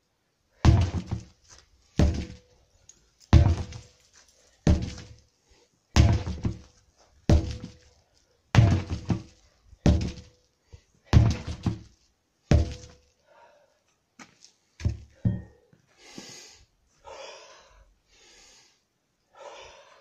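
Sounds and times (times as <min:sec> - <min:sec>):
sledgehammer thudding on tyres: 0:00.6 - 0:01.4, 0:02.0 - 0:02.5, 0:03.3 - 0:04.0, 0:04.6 - 0:05.2, 0:06.0 - 0:07.9, 0:08.5 - 0:10.4, 0:11.1 - 0:13.1, 0:14.8 - 0:15.6.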